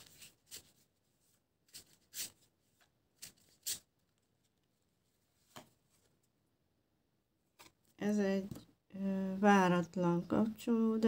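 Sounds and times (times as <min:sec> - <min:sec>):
cards being shuffled: 0:01.7 - 0:04.7.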